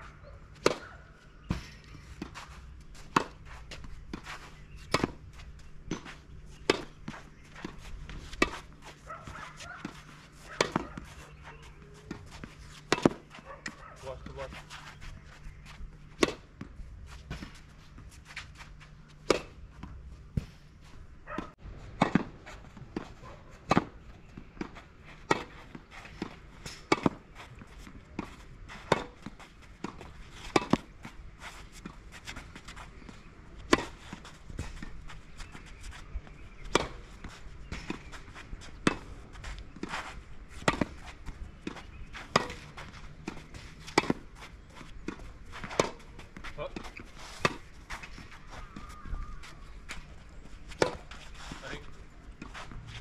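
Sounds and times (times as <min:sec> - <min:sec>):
tennis racket hitting ball: 0:05.9 - 0:14.4, 0:16.2 - 0:16.4, 0:19.2 - 0:19.6, 0:24.6 - 0:30.9, 0:33.6 - 0:34.9, 0:38.8 - 0:49.0, 0:50.7 - 0:51.2.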